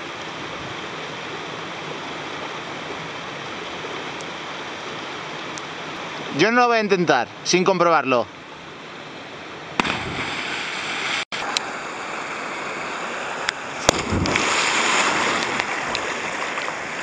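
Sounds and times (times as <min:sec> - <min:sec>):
river water rushing: 0:00.0 - 0:17.0
splash of person jumping in water: 0:09.8 - 0:11.2, 0:13.8 - 0:16.9
wind on microphone: 0:13.9 - 0:16.4.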